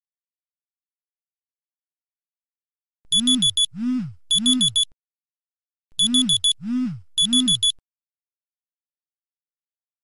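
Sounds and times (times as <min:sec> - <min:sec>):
phone alarm beeps and tone: 0:03.1 - 0:04.9, 0:06.0 - 0:07.8.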